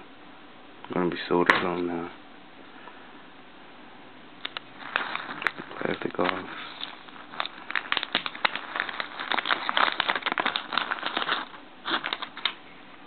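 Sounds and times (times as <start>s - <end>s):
plastic film crackling: 4.4s - 12.6s.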